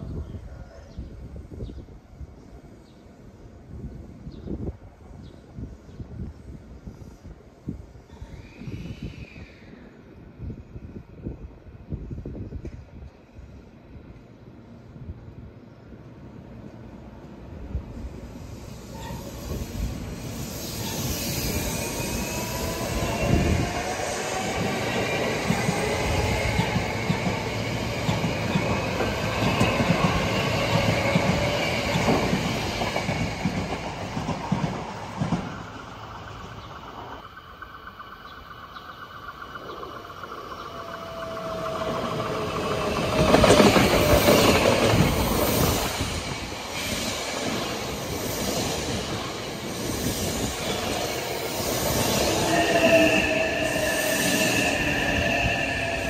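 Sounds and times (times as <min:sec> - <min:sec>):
train wheels on rails: 0:16.6 - 0:56.0.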